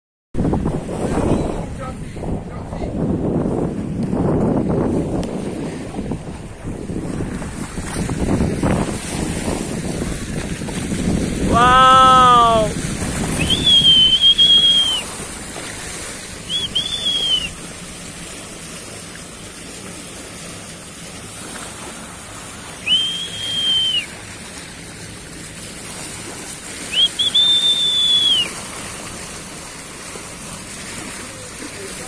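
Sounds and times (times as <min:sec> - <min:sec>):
sea and wind noise: 0:00.4 - 0:32.0
person whistling long notes: 0:13.4 - 0:15.1, 0:16.5 - 0:17.6, 0:22.8 - 0:24.1, 0:26.9 - 0:28.6.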